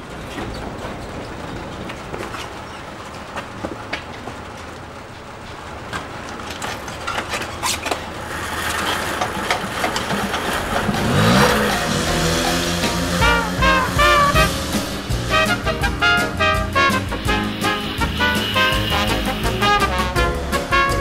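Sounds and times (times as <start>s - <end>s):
moped engine revving: 7.9s - 21.0s.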